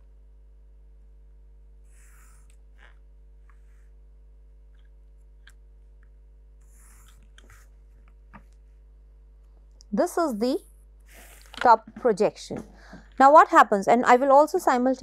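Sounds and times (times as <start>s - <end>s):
low electrical hum: 0.0s - 15.0s
pencil strokes on paper: 1.9s - 2.5s, 6.6s - 7.9s.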